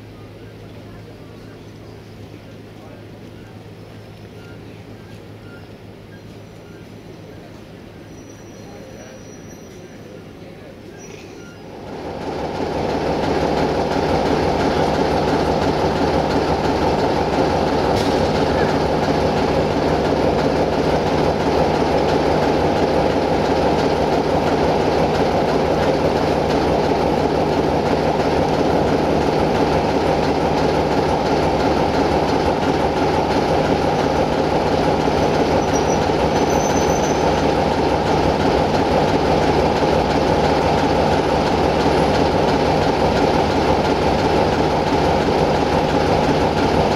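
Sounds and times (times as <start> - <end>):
diesel locomotive engine rumbling: 0.0 - 46.9.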